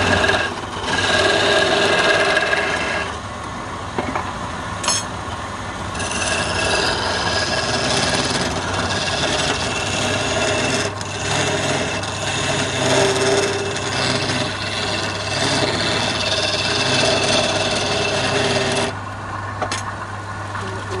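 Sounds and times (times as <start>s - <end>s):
chisel scraping spinning wood: 0.0s - 3.2s, 5.9s - 19.0s
wood lathe running: 0.0s - 3.2s, 5.9s - 19.0s.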